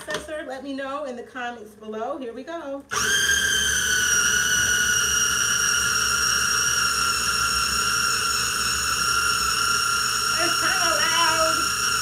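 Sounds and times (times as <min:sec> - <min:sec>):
food processor whining: 0:02.9 - 0:12.0.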